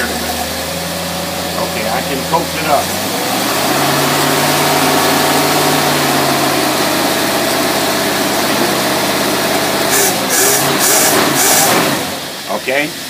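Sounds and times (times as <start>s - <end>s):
engine running at raised speed: 0.0s - 13.0s
short bursts of hiss: 9.9s - 11.9s.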